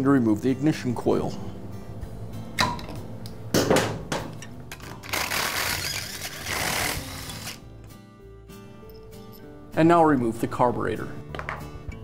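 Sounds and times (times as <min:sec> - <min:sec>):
cordless drill whirring: 0:05.0 - 0:07.6
knocks of tools handled: 0:11.3 - 0:12.0.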